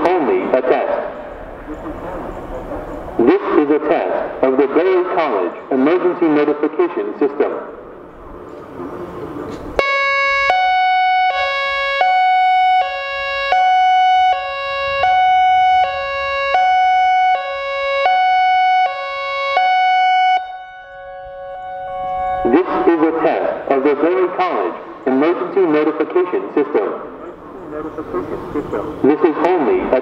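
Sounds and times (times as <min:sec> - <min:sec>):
faint distant sirens: 0:00.0 - 0:30.0
warning siren hi-lo tone: 0:09.8 - 0:24.8.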